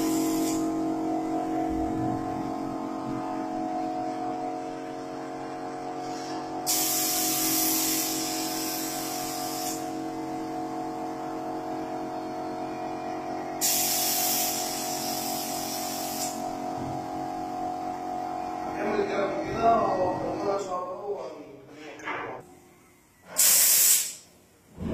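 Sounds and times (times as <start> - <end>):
paint spray gun hissing: 0.0 - 0.7, 6.6 - 10.0, 13.6 - 16.5, 23.4 - 24.2
steady hum: 0.0 - 23.4.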